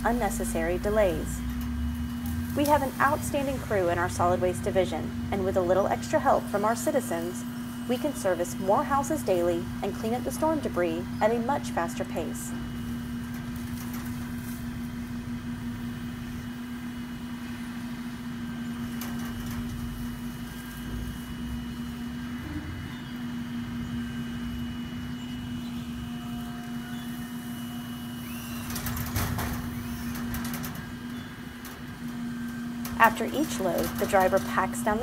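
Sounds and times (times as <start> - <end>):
branches crackling: 0.0 - 22.0
truck engine and hydraulic hum: 0.0 - 35.0.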